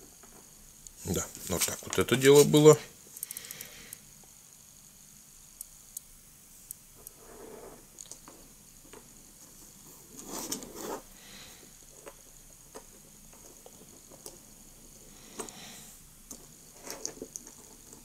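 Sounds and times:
scraping rustle: 1.1 - 2.8, 7.2 - 7.9, 9.5 - 11.1.

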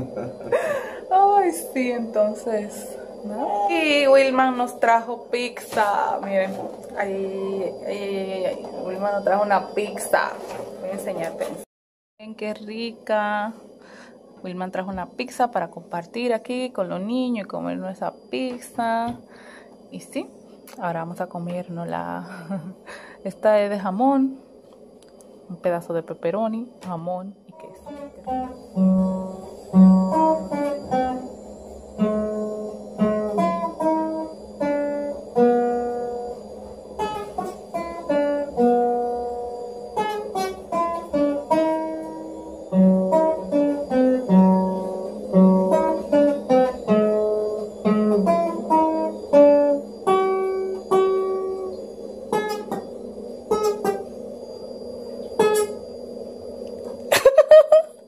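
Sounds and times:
classical guitar melody: 27.6 - 54.1, 55.3 - 55.8.

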